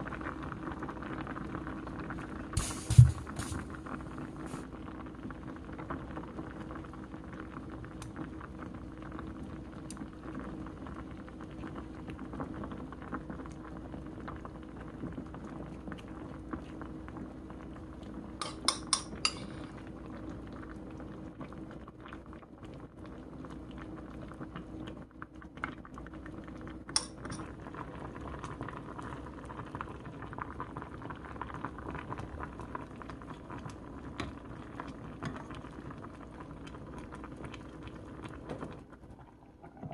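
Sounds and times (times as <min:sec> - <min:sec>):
liquid simmering in a pot: 0:00.0 - 0:39.9
clinks against a metal pot: 0:18.4 - 0:19.6.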